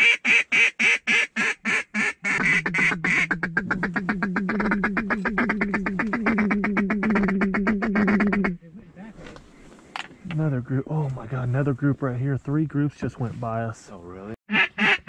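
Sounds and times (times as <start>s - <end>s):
duck call clucking chatter: 0.0s - 8.6s, 14.5s - 15.0s
duck call quacks: 0.0s - 8.6s, 14.5s - 15.0s.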